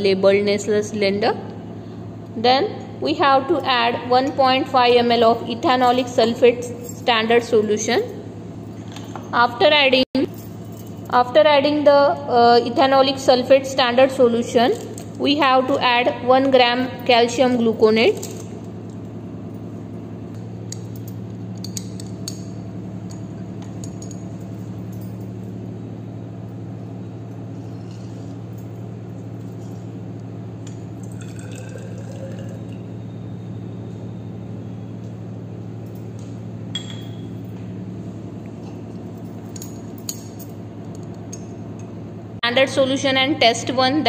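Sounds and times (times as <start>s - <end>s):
steady low hum: 0.0s - 44.0s
glassware clinking: 30.8s - 32.9s, 36.7s - 37.4s.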